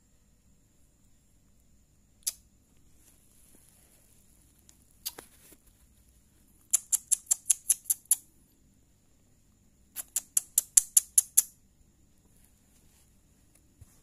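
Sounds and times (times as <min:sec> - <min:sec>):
sharp high clicks: 0:02.2 - 0:02.4, 0:06.7 - 0:08.3, 0:09.9 - 0:11.6.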